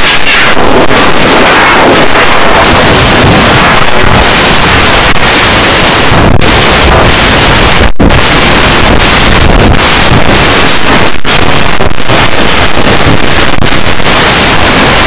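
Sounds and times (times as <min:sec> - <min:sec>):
loud distorted clipped noise: 0:00.0 - 0:15.0.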